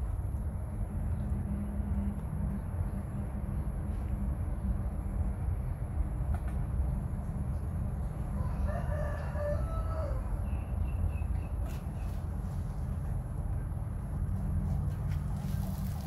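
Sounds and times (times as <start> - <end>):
steady low rumble: 0.0 - 16.0
rooster crowing: 8.3 - 10.6.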